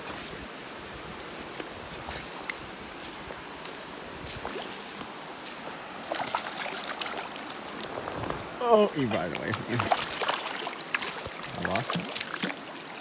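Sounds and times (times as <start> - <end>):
creek trickling over rocks: 0.0 - 13.0
small water splashes: 4.3 - 13.0.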